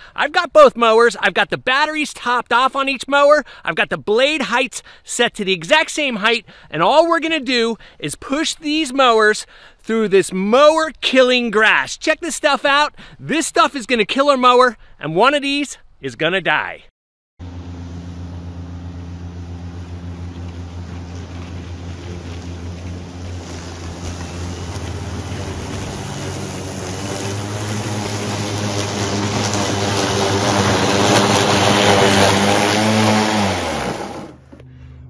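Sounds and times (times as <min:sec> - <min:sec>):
blades chopping grass: 0:17.4 - 0:34.6
electric lawn mower motor hum: 0:17.4 - 0:35.0.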